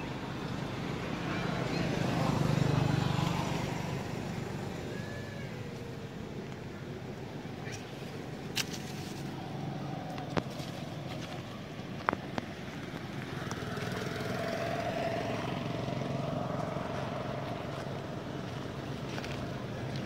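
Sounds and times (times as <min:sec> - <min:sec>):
vehicle engine passing: 0:00.0 - 0:06.5, 0:12.4 - 0:20.0.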